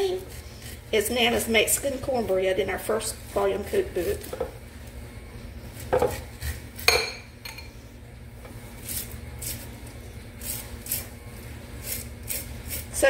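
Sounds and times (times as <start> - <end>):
knife scraping corn cob: 8.8 - 9.7, 10.4 - 11.1, 11.8 - 13.0.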